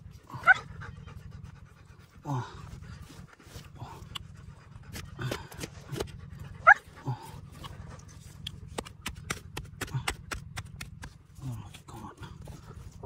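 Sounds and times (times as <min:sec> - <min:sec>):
steady low rumble: 0:00.0 - 0:13.0
dog whining: 0:00.3 - 0:01.4, 0:06.5 - 0:07.1
sharp clicks and knocks: 0:08.4 - 0:11.8.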